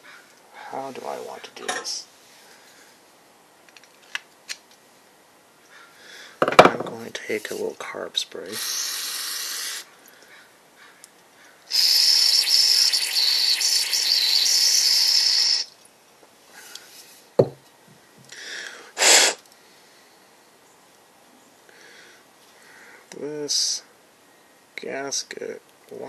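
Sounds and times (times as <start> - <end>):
aerosol spray hissing: 8.4 - 9.9, 11.7 - 15.7, 19.0 - 19.4.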